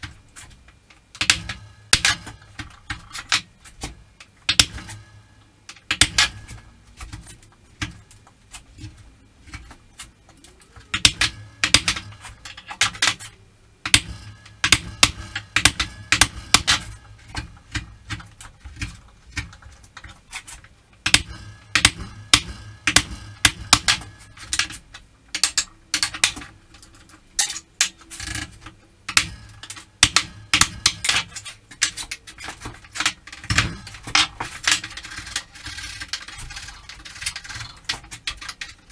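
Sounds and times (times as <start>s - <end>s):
chisel chopping wood: 13.9s - 19.6s.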